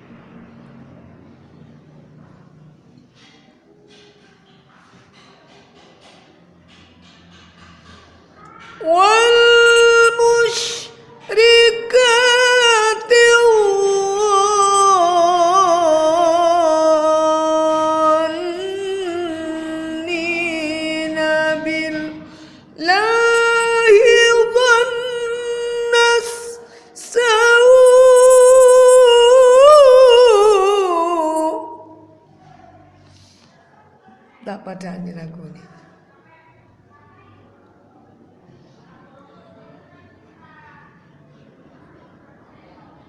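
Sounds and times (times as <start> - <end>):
woman reciting melodically: 8.4 - 32.3.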